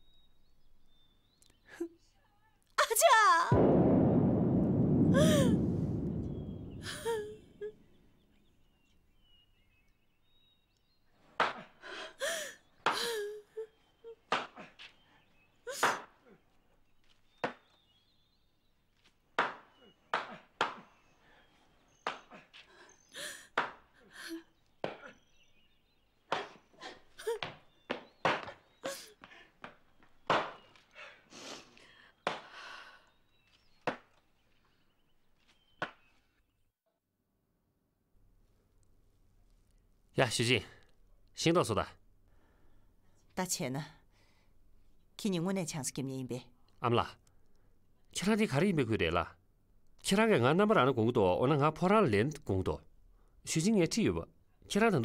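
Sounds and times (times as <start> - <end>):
axe chopping wood: 19.4 - 20.9, 30.3 - 30.6.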